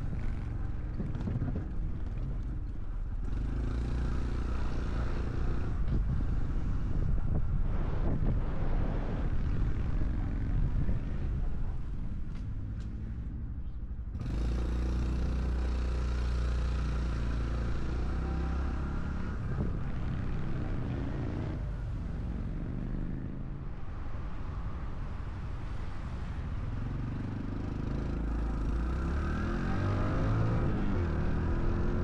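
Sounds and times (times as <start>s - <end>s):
wind and road noise: 0.0s - 32.0s.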